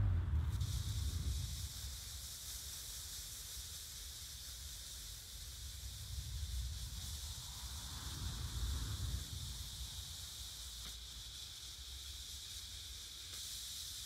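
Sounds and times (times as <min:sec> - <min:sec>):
low rumble: 0:00.0 - 0:02.1, 0:05.7 - 0:10.2
smoke firework hissing: 0:00.0 - 0:14.0.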